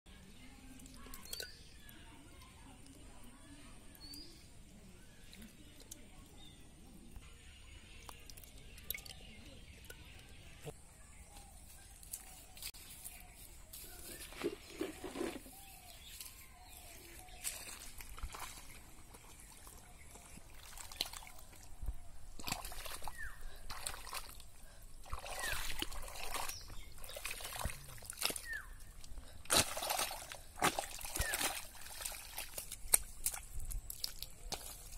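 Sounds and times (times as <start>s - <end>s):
water sloshing and trickling: 7.8s - 10.6s, 13.9s - 34.9s
hands squelching in wet mud: 13.8s - 34.9s.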